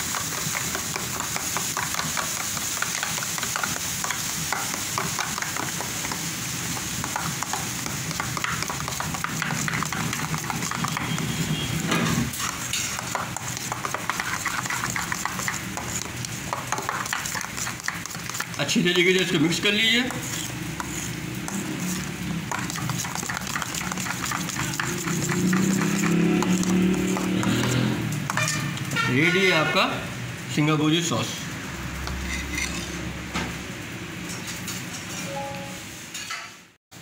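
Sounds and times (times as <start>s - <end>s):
metal spoon scraping a steel bowl: 9.4s - 16.1s, 16.7s - 27.7s, 32.1s - 33.0s.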